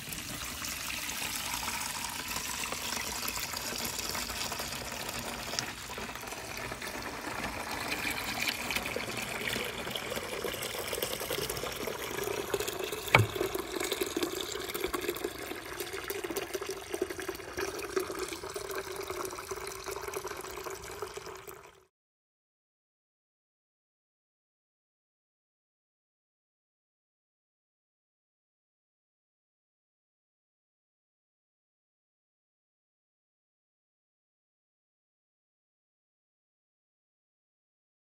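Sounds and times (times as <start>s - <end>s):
water pouring into a plastic bucket: 0.0s - 21.9s
sharp knock: 13.2s - 13.4s.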